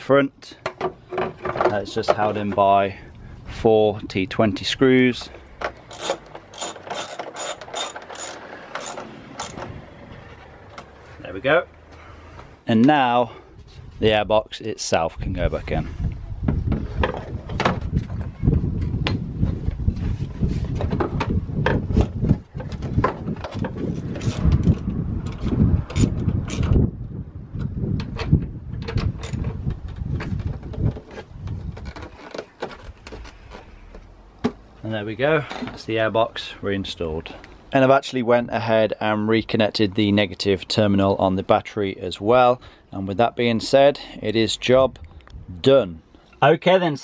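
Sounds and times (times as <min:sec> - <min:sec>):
ratchet clicking: 0:05.9 - 0:09.6.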